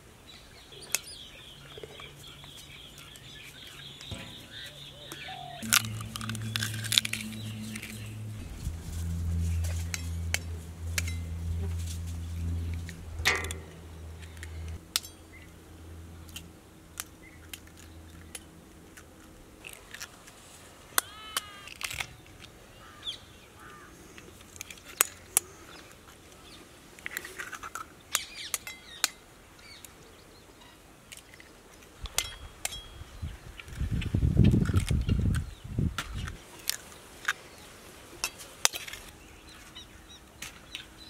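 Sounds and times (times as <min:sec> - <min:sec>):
birds chirping: 0:00.3 - 0:15.5.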